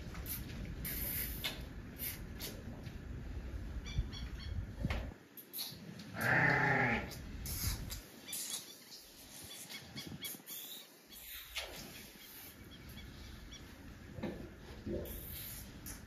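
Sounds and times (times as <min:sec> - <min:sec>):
elephant calf bleat-like call: 0:06.2 - 0:07.2.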